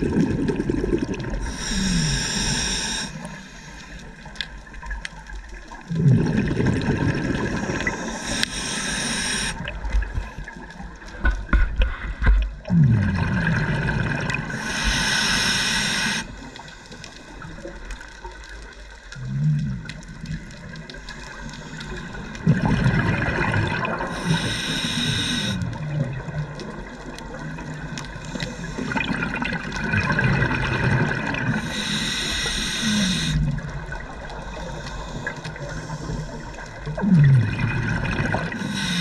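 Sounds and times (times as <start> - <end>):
bubbling exhalations underwater: 0.0 - 2.8, 5.8 - 10.2, 12.6 - 14.9, 22.4 - 24.6, 28.8 - 32.0, 36.7 - 39.0
regulator breath hissing: 1.4 - 4.0, 7.6 - 9.6, 14.5 - 16.6, 24.1 - 25.6, 31.6 - 33.5, 38.5 - 39.0.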